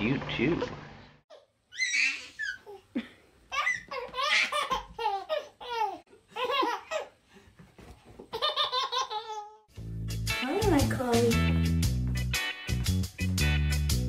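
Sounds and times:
toddler giggling and squealing: 1.3s - 7.2s.

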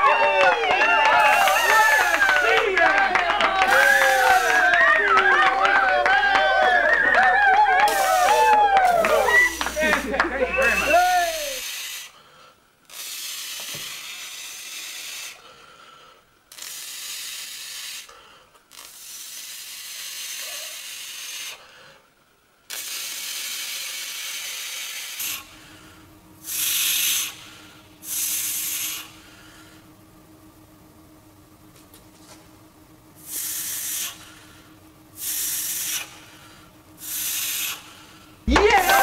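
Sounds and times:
steady low hum: 0.0s - 12.9s, 24.5s - 39.0s
bursts of hissing noise: 1.0s - 5.0s, 7.8s - 29.8s, 33.2s - 39.0s.

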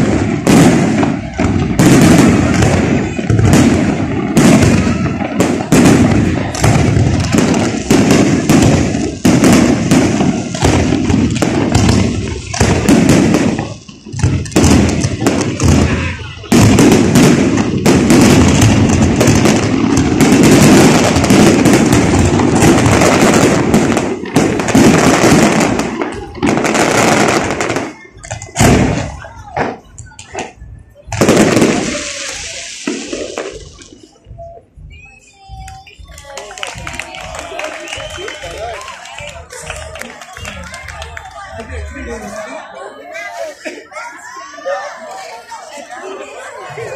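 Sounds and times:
fireworks bursting and crackling: 0.0s - 42.6s.

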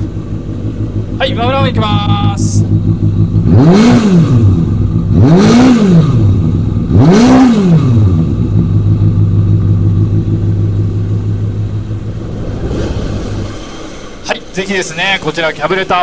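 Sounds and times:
motorcycle engine revving and idling: 0.0s - 12.6s.

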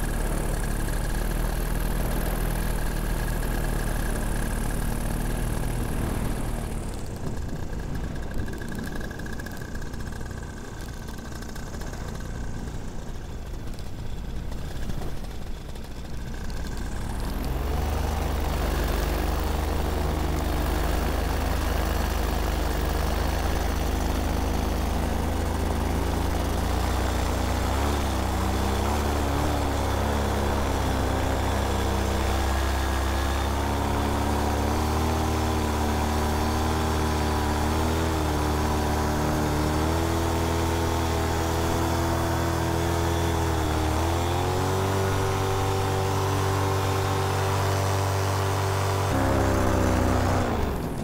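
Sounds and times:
paramotor engine running: 0.0s - 51.0s.

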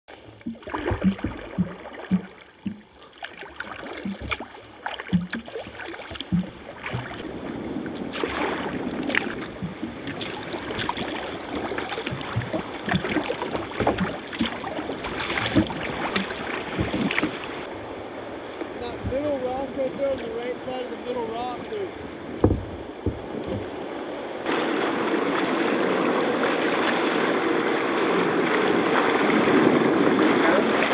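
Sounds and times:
paddle blades splashing: 0.1s - 30.9s
water washing along hull: 0.1s - 30.9s
short low knocks and slaps: 5.1s - 5.5s, 6.2s - 7.3s, 22.4s - 23.8s.

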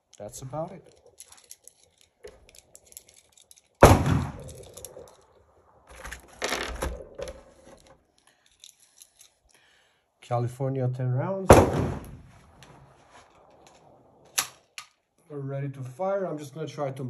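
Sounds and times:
loud gunshots: 3.8s - 4.5s, 11.5s - 12.3s.

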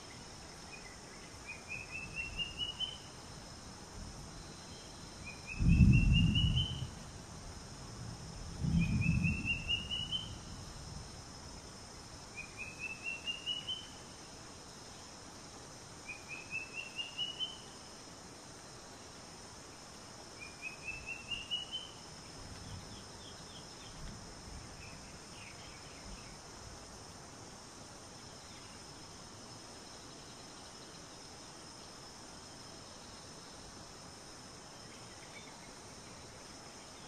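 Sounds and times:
high insect drone: 0.0s - 37.0s
bird singing rising notes: 5.3s - 6.9s, 8.7s - 10.4s.

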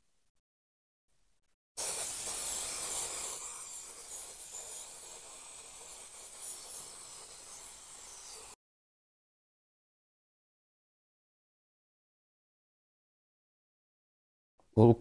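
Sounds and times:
aerosol can spraying: 1.8s - 8.6s.

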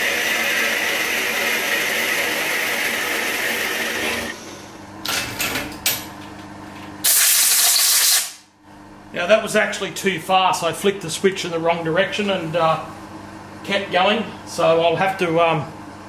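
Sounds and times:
milling spindle whirring: 0.0s - 4.8s
loud hiss: 7.0s - 8.4s.

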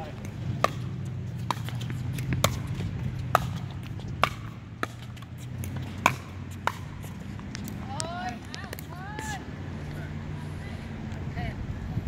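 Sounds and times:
tennis balls popping off rackets: 0.0s - 9.5s.

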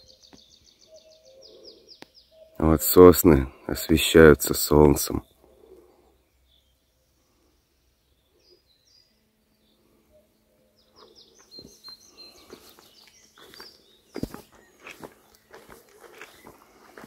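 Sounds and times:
small birds chirping: 0.0s - 17.0s
footsteps on dry forest floor: 11.0s - 17.0s.

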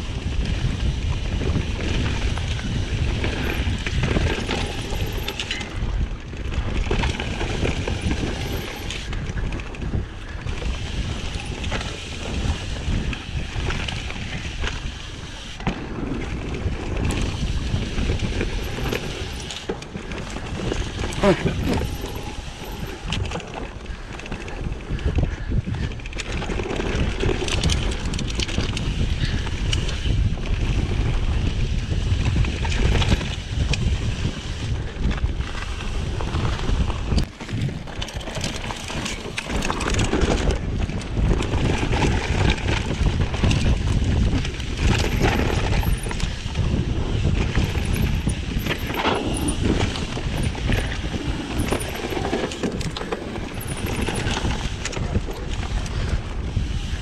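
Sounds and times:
bike rattling and knocking: 0.0s - 57.0s
bike tyres rumbling: 0.0s - 57.0s
wind buffeting microphone: 0.0s - 57.0s.

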